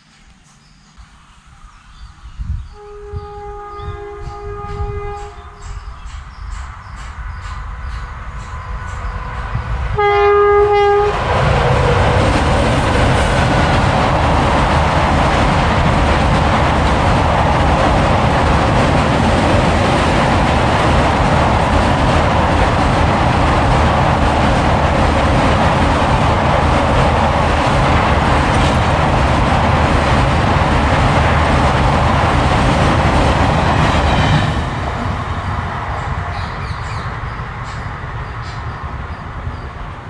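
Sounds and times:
train wheels rumbling on rails: 0:02.4 - 0:40.0.

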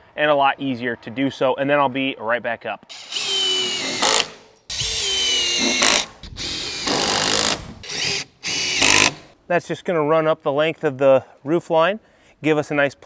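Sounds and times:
cordless drill driving screws: 0:02.9 - 0:09.3.

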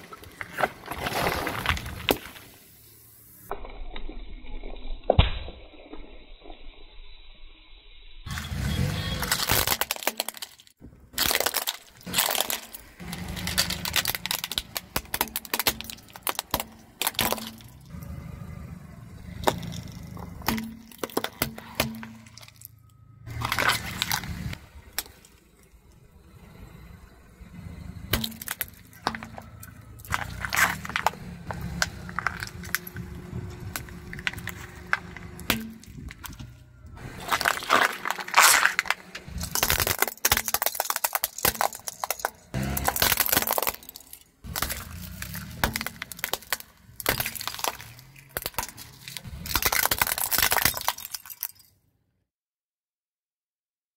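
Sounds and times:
plastic cracking and crunching: 0:09.2 - 0:17.9, 0:23.3 - 0:25.3, 0:28.1 - 0:51.7
low rumble: 0:22.0 - 0:39.8.

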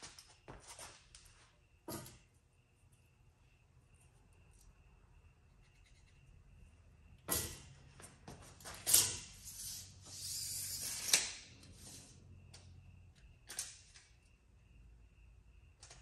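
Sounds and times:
tape measure blade retracting: 0:08.9 - 0:11.4.

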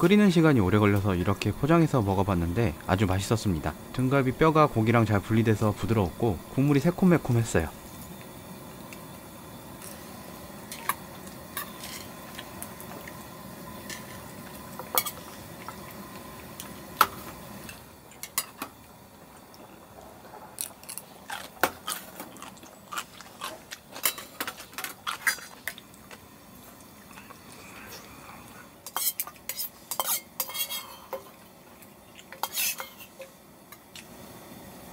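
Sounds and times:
steady low hum: 0:00.0 - 0:34.9
utensils clinking against dishes: 0:11.6 - 0:12.2, 0:22.9 - 0:25.8, 0:28.8 - 0:31.3, 0:32.2 - 0:33.4.

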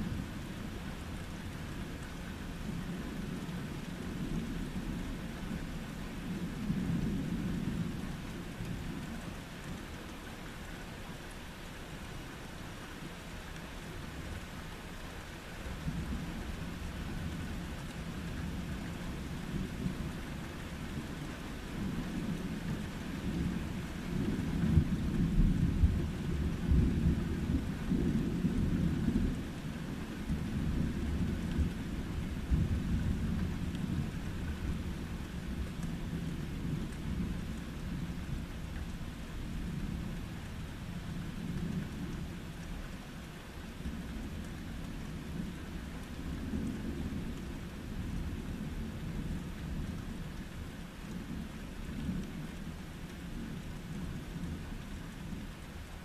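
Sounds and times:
steady rain hiss: 0:00.0 - 0:56.0
deep rumble of thunder: 0:15.8 - 0:42.6.

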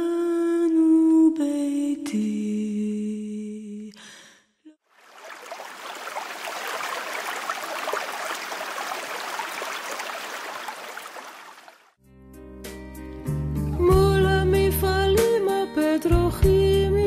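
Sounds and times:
stream babbling: 0:04.9 - 0:11.9
music: 0:12.0 - 0:17.0.

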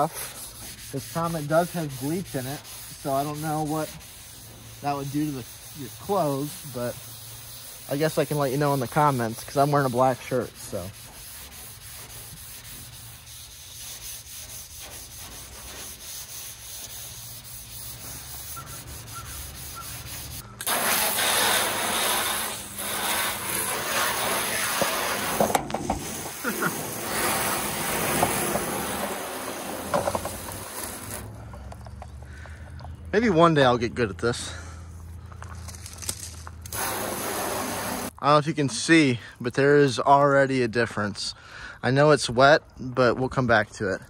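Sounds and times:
sponge scrubbing gritty cleanser: 0:00.0 - 0:31.3.

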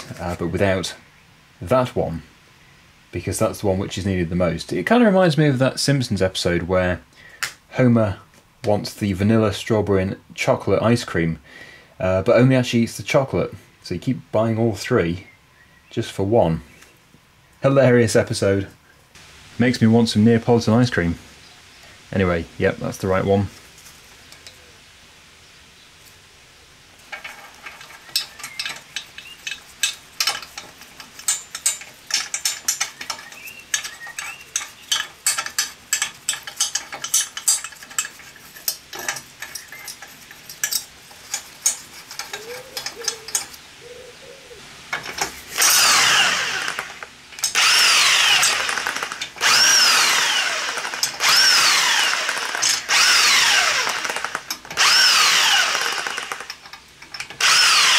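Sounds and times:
metal bolts clinking: 0:27.1 - 0:43.6
cordless drill running: 0:45.6 - 0:56.6, 0:57.4 - 0:57.9.

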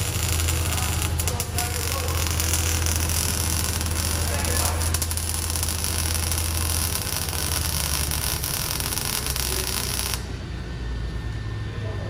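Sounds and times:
welding arc crackling hiss: 0:00.0 - 0:10.4
steady low hum: 0:00.0 - 0:12.0.

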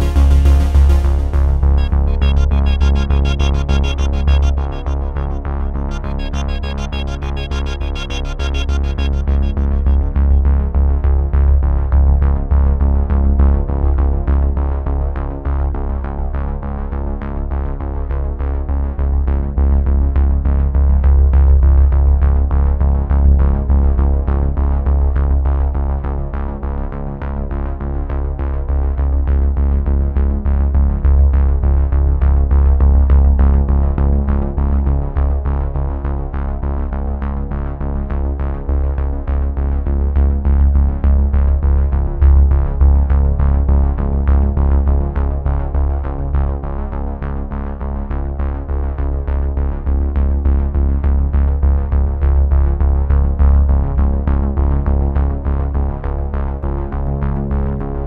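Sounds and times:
electronic music with synthesizer: 0:00.0 - 0:11.0.

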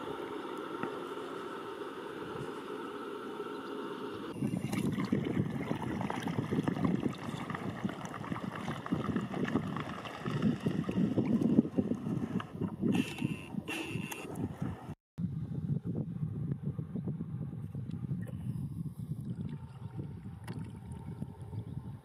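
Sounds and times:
steady low hum: 0:00.0 - 0:22.0
swans wings beating and splashing: 0:05.8 - 0:11.4.

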